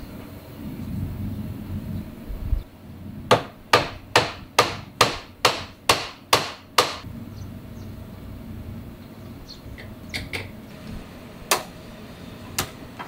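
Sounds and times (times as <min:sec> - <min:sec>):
wooden mallet knocking on wood: 0:03.3 - 0:07.0.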